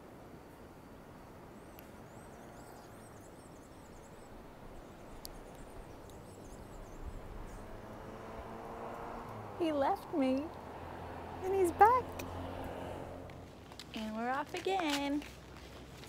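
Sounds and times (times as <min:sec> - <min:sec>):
faint outdoor hum: 0:00.0 - 0:16.0
small bird chirping: 0:01.6 - 0:08.0.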